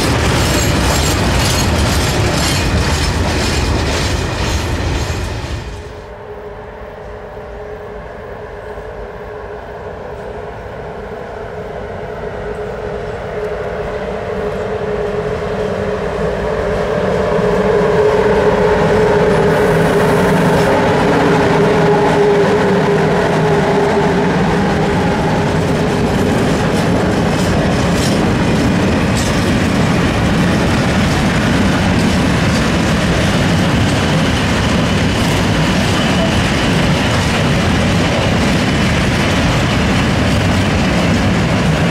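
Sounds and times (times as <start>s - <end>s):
train wheels clattering: 0.0s - 5.9s, 19.0s - 41.9s
train droning: 0.0s - 41.9s.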